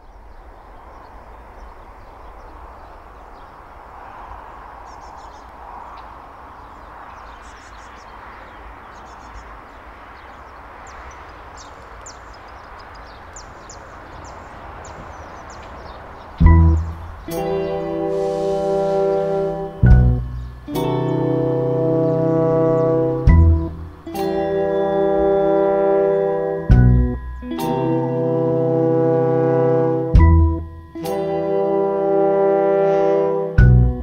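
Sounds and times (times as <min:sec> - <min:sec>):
small birds chirping: 0:00.0 - 0:26.2
low rumble and hiss: 0:16.4 - 0:25.6.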